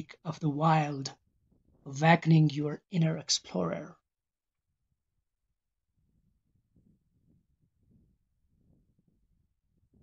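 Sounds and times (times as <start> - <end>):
faint low rumble: 4.8 - 10.0.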